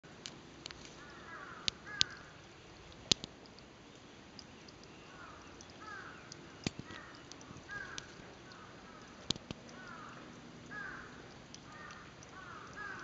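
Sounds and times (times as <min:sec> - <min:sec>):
sharp clicks: 0:00.2 - 0:13.0
crow cawing: 0:01.0 - 0:02.2, 0:05.1 - 0:13.0.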